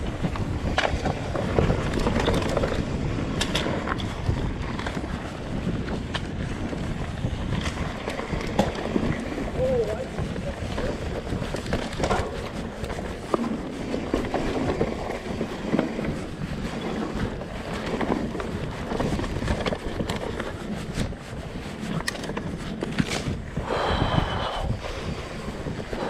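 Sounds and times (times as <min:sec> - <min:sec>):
clicks and knocks over bumps: 0:00.0 - 0:23.5
bike rattling: 0:00.0 - 0:26.0
bike tyres rolling on dirt: 0:00.0 - 0:26.0
wind noise on microphone: 0:00.0 - 0:26.0.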